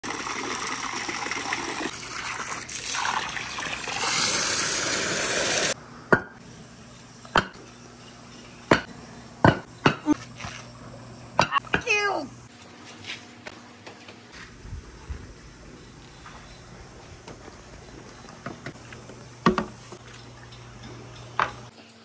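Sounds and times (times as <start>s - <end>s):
water pouring from a hose: 0.0s - 5.8s.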